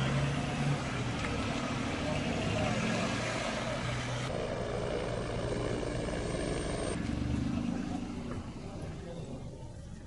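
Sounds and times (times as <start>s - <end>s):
vehicle engine hum: 0.0s - 10.0s
helicopter rotor noise: 4.3s - 7.0s.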